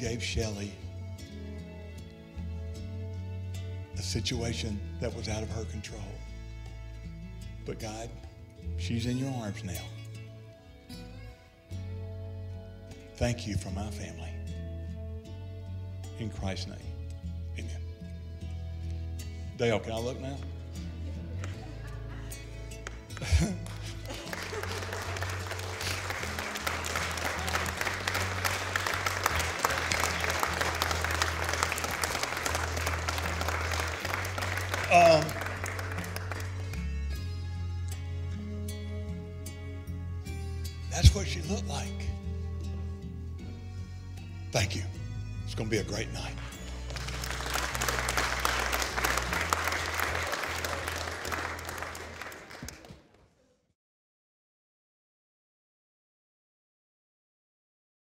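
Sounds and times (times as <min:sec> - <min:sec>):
background music with bass line: 0:00.0 - 0:51.3
crowd applauding: 0:21.2 - 0:37.4, 0:45.8 - 0:53.3.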